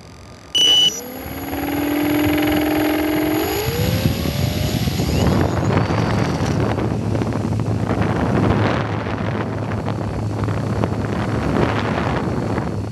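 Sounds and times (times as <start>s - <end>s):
model plane motor humming: 0.0s - 7.2s
wind rushing on microphone: 1.2s - 12.9s.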